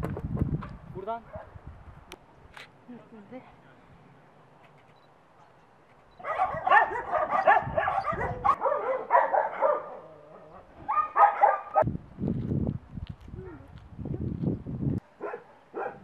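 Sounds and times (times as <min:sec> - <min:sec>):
many dogs barking: 0:06.2 - 0:11.8, 0:15.2 - 0:16.0.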